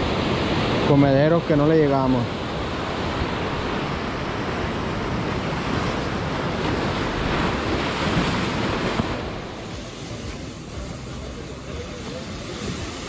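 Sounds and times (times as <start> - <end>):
ocean surf breaking: 0.0 - 13.0
wind on microphone: 2.3 - 13.0.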